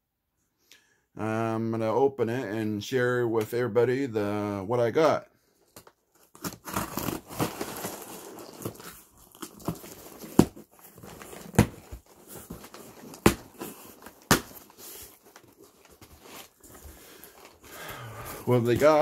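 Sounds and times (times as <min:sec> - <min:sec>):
knife slitting packing tape: 0:06.3 - 0:11.9.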